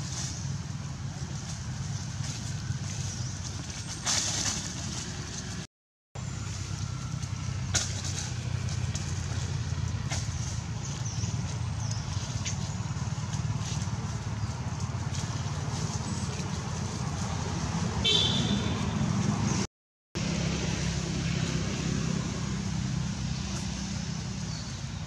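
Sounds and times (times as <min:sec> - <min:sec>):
rustles and clicks: 0:00.0 - 0:05.7, 0:07.1 - 0:18.0
low engine-like rumble: 0:00.0 - 0:25.0.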